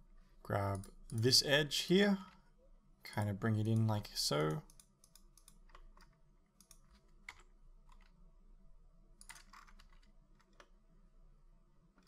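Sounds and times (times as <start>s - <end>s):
keyboard and mouse clicks: 0.7s - 1.4s, 3.6s - 8.2s, 9.2s - 10.8s.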